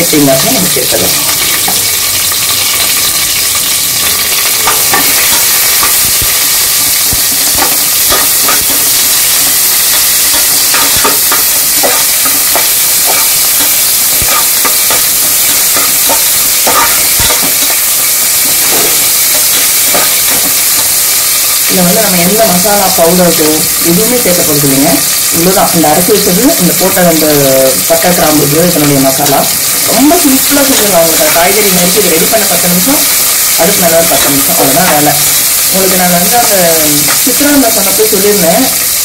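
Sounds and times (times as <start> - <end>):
onion sizzling in hot oil: 0.0 - 39.0
spatula scraping and knocking pot: 7.3 - 8.8, 10.3 - 17.8, 19.8 - 20.6.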